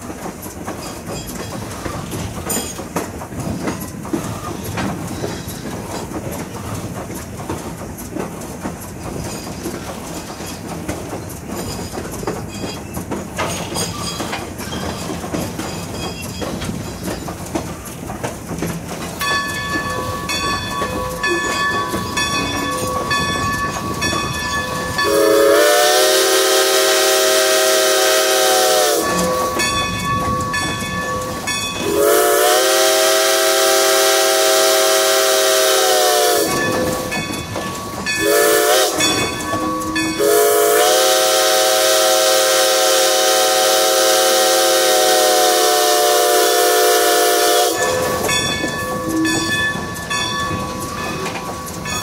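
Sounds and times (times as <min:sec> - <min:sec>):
train rolling on rails: 0:00.0 - 0:52.0
steam locomotive whistle blasts: 0:25.0 - 0:29.7, 0:31.3 - 0:37.1, 0:38.2 - 0:49.5.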